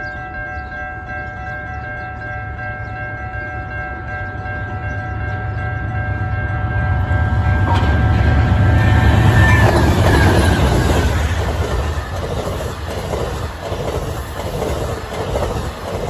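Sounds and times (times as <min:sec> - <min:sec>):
locomotive engines and wheels rumbling: 0:00.0 - 0:16.0
rush of passing train: 0:04.3 - 0:16.0
train horn chord: 0:04.8 - 0:11.6.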